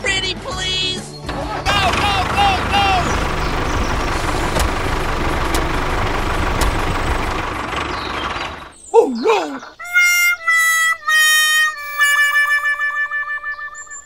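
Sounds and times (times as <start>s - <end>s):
engine-like running noise: 1.3s - 9.7s
faint ticking: 1.8s - 8.7s.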